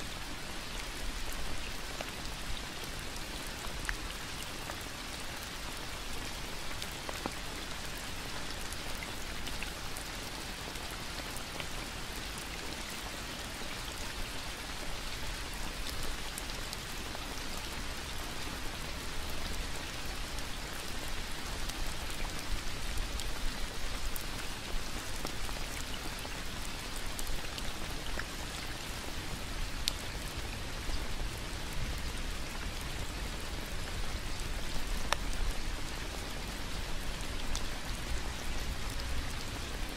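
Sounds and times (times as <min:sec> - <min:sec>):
steady rain falling: 0:00.0 - 0:39.9
single raindrops ticking: 0:34.7 - 0:35.6.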